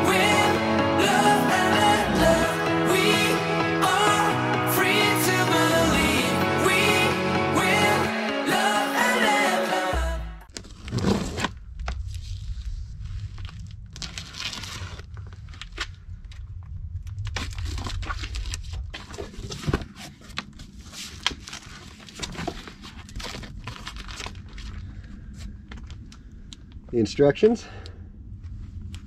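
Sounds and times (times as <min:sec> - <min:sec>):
low rumble: 0:01.7 - 0:04.2, 0:11.6 - 0:19.2
cardboard tearing and crinkling: 0:10.5 - 0:12.5, 0:13.2 - 0:16.0, 0:17.3 - 0:24.8.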